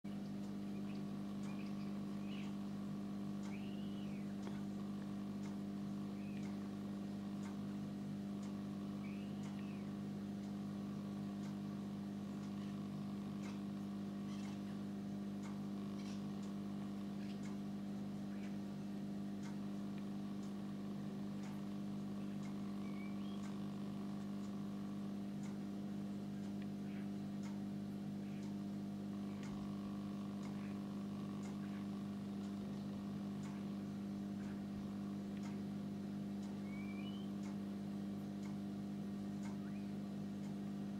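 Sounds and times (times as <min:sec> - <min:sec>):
low machine hum: 0:00.0 - 0:40.9
faint ticks: 0:00.1 - 0:40.9
faint whistle: 0:03.5 - 0:04.3, 0:36.6 - 0:37.4.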